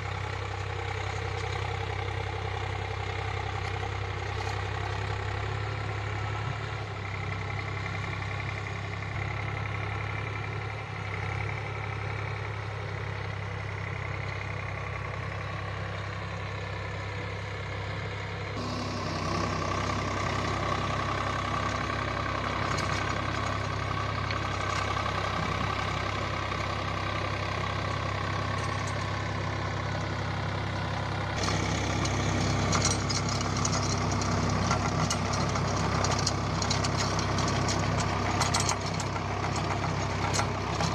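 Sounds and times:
tractor diesel engine running: 0.0s - 40.9s
tiller blades churning dirt: 18.6s - 40.9s.

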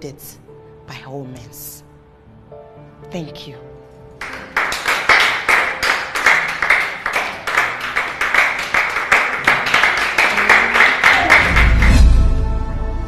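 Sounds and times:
group clapping: 4.2s - 12.3s.

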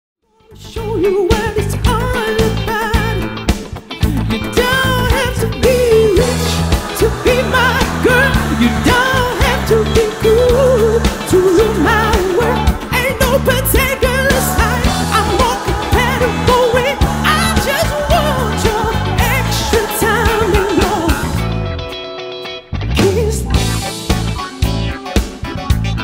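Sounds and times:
person singing pop song: 0.4s - 22.2s, 22.9s - 24.4s
steady bass beat: 4.0s - 21.8s.

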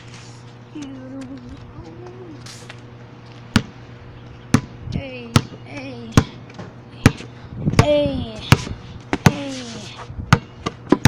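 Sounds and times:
basketball bouncing on pavement: 3.5s - 3.8s, 4.5s - 11.0s.

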